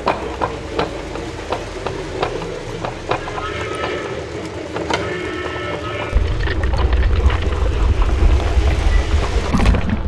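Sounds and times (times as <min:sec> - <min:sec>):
low steady rumble: 0:06.1 - 0:10.0.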